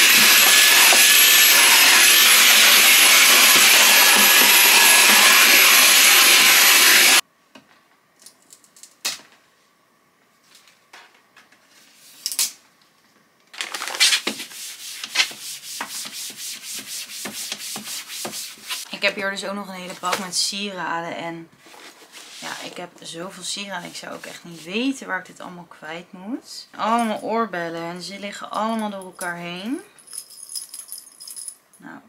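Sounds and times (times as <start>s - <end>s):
vacuum cleaner running: 0.0s - 7.2s.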